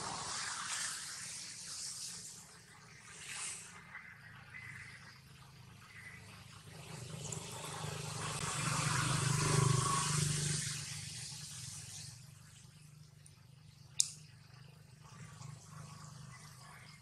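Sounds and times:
motor vehicle passing: 0:06.6 - 0:12.1.

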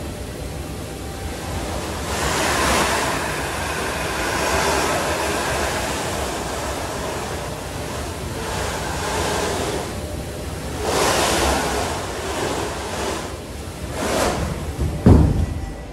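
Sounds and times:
treadmill carpet and machinery rushing: 0:00.0 - 0:15.9
snowboard sliding on carpet: 0:10.8 - 0:15.2.

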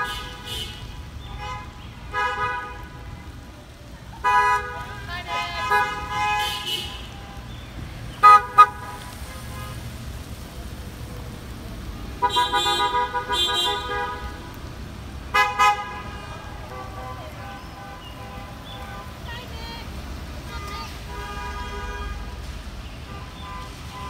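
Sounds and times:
car horns honking: 0:00.0 - 0:03.1, 0:04.2 - 0:09.9, 0:12.2 - 0:14.6, 0:15.3 - 0:19.4, 0:20.6 - 0:24.0
passing cars rumbling: 0:00.0 - 0:24.0.

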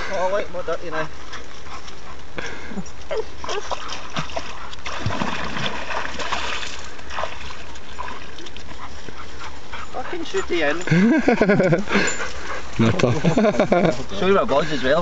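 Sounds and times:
water splashing and sloshing: 0:03.1 - 0:15.0.

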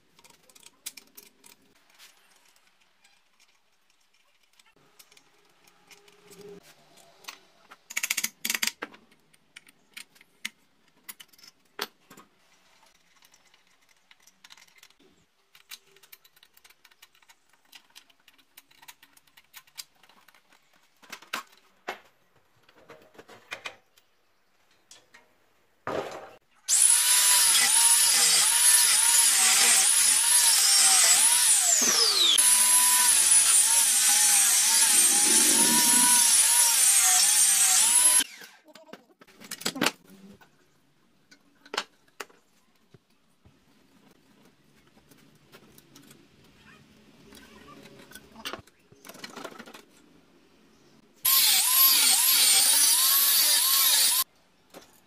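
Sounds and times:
angle grinder cutting steel: 0:26.7 - 0:38.6, 0:51.3 - 0:54.2.

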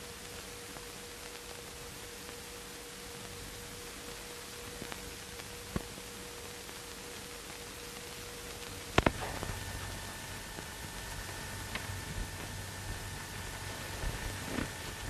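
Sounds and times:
film soundtrack hiss: 0:00.0 - 0:15.0.

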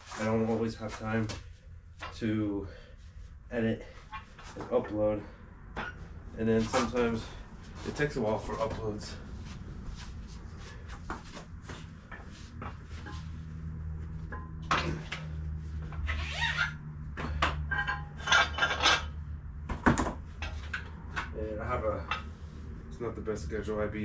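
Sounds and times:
steady low hum: 0:00.0 - 0:16.1
metallic clanks: 0:17.2 - 0:19.2.

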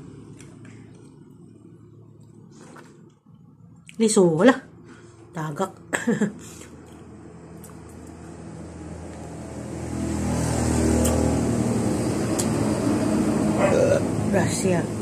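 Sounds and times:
vehicle engine running: 0:00.0 - 0:03.8.

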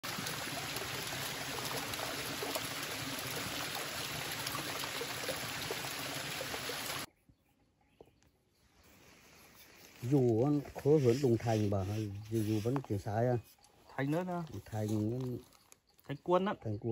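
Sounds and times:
small waterfall splashing into pool: 0:00.0 - 0:07.1.

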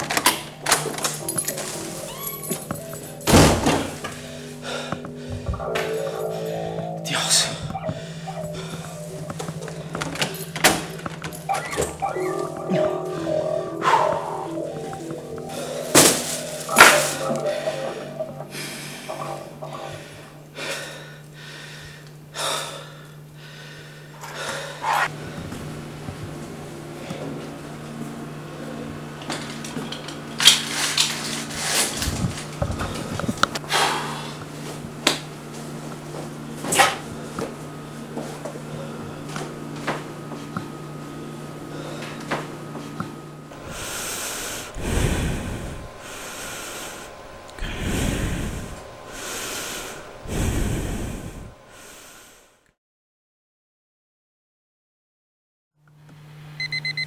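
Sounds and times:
steady electrical hum: 0:00.0 - 0:52.6
slow swelling whooshes: 0:04.0 - 0:20.5.

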